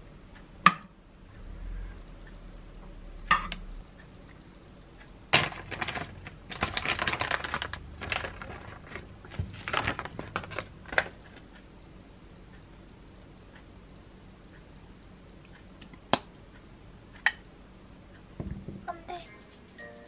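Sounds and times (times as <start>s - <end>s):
plastic pouch crinkling: 5.4s - 11.2s.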